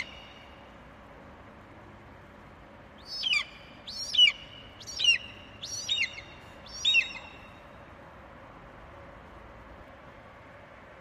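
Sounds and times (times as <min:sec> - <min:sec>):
budgerigar chirping: 0:00.0 - 0:00.3, 0:03.0 - 0:07.5.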